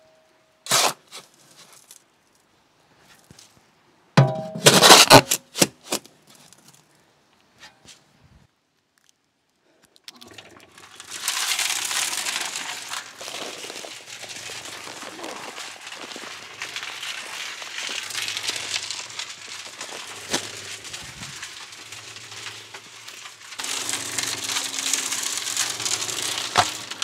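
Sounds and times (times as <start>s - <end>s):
shovelful tipped into steel drum: 4.2s - 5.7s
cement mixer drum rattling: 10.4s - 27.0s.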